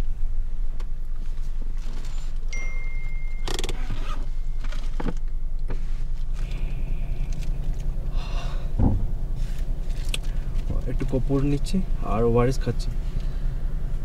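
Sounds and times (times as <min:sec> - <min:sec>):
car engine idling: 0:00.0 - 0:14.0
high beep: 0:02.6 - 0:04.6.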